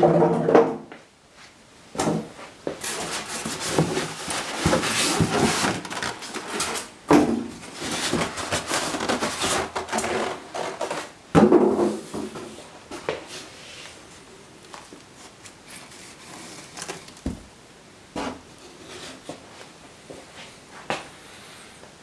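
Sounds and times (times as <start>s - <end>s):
foam and plastic scraping and rustling: 2.8s - 17.5s.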